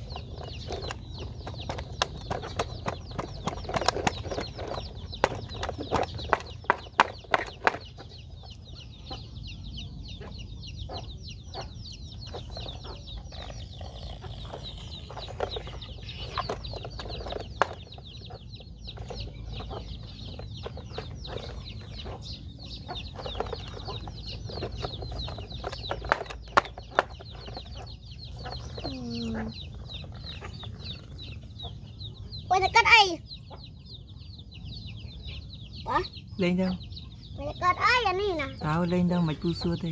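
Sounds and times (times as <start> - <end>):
plastic toy knocking and scraping: 0.0 - 8.6, 12.2 - 28.9
chicken clucking: 0.0 - 36.1
steady high chirping: 0.0 - 39.9.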